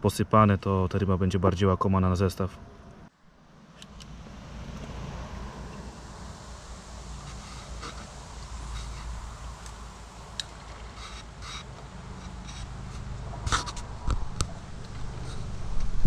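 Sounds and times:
wind rumble on microphone: 3.8s - 16.0s
fishing reel clicks and scrapes: 10.4s - 13.8s.

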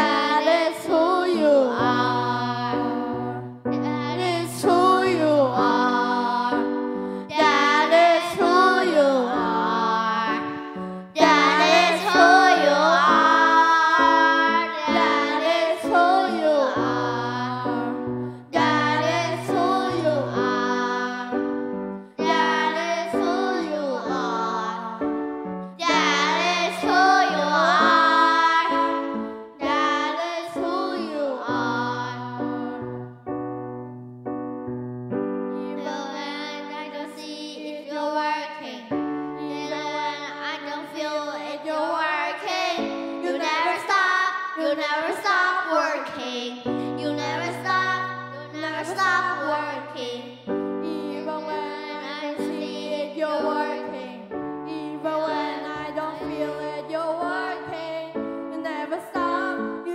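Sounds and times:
keyboard chords and bass: 1.0s - 36.6s
person singing worship song: 4.1s - 21.5s.

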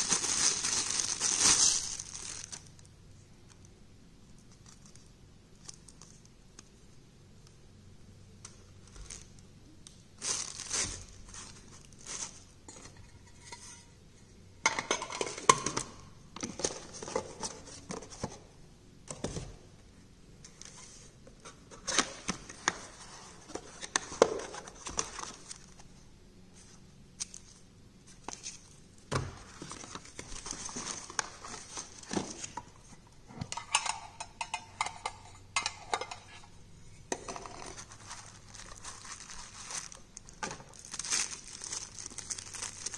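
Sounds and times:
paper and plastic rustling: 0.0s - 2.9s, 10.2s - 13.0s, 20.4s - 33.0s, 37.2s - 42.9s.

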